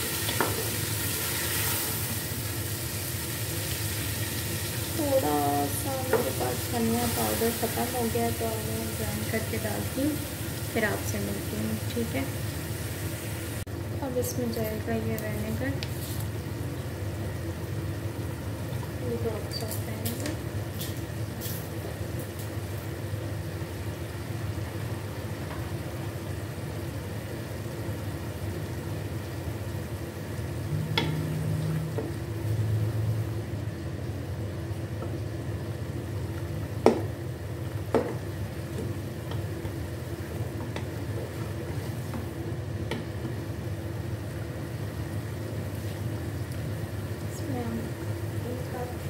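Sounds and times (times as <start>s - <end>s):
chicken sizzling in a pot: 0.0s - 49.0s
spoon knocking on pot: 37.9s - 38.2s.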